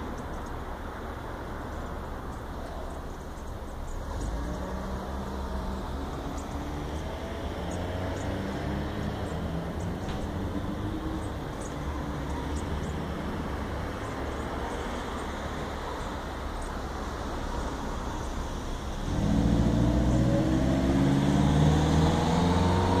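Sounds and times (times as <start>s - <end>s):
vehicle engine accelerating: 4.0s - 14.0s, 18.8s - 23.0s.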